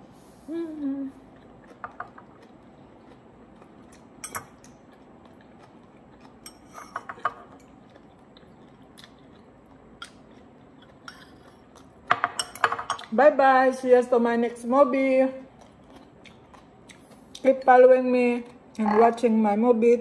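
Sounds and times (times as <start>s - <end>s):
person humming: 0.4s - 1.3s.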